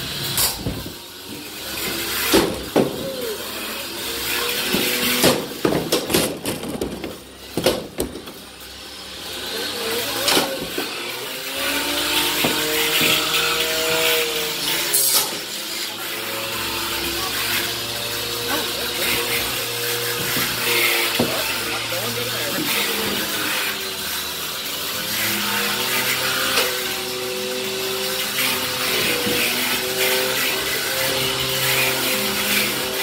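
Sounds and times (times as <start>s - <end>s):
electric motor whine: 0.0s - 33.0s
hard knocks: 2.3s - 3.0s, 4.7s - 8.4s.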